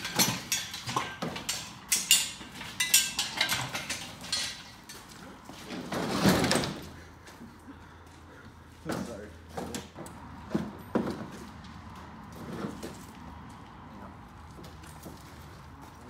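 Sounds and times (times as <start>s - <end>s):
steel clanks and knocks: 0.0s - 6.8s.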